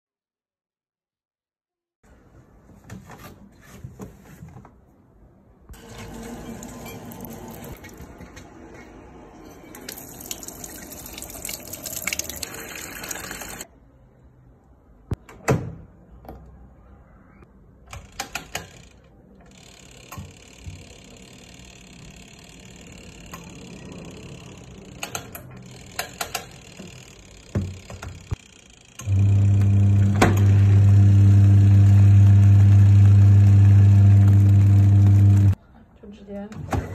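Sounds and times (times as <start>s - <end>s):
washing machine motor humming: 5.8s - 7.9s, 9.8s - 13.6s, 29.0s - 35.6s
water running into tub: 9.8s - 13.6s.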